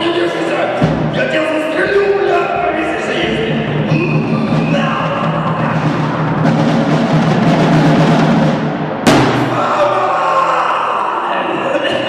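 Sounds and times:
sharp cymbal crash: 9.0s - 9.8s.

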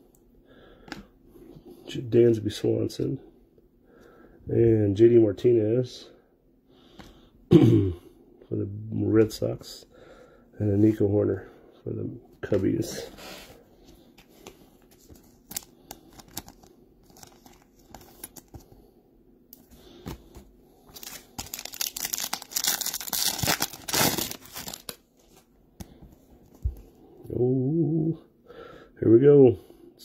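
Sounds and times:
foil wrapper crinkling and tearing: 15.3s - 18.6s, 20.9s - 25.0s.

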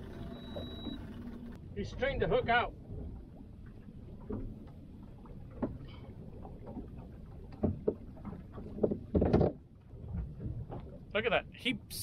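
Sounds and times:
water lapping against boat hull: 0.0s - 12.0s
light knocks on boat: 5.5s - 5.8s, 7.5s - 9.6s.

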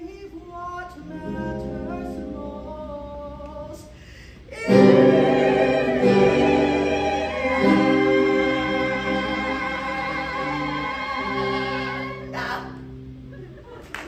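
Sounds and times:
choir singing in harmony: 4.5s - 12.9s.

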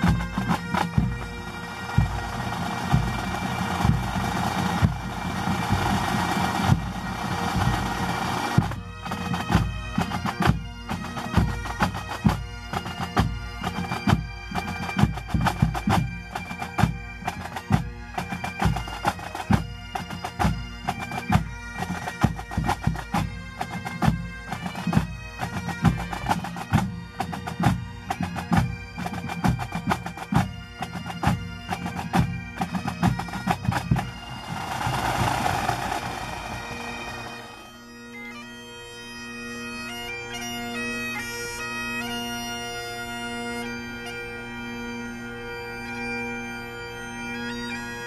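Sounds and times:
bagpipes playing: 0.0s - 48.0s
fast drumbeats: 31.2s - 37.7s.

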